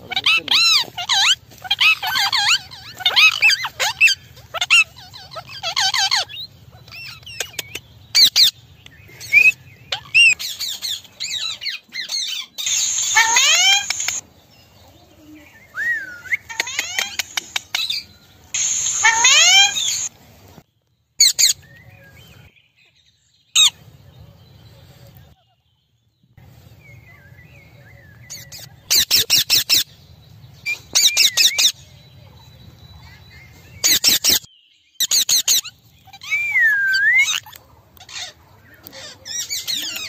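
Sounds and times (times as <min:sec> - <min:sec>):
parakeets squawking: 0:00.0 - 0:08.6, 0:09.9 - 0:14.2, 0:16.4 - 0:20.1, 0:33.8 - 0:36.3, 0:36.9 - 0:40.0.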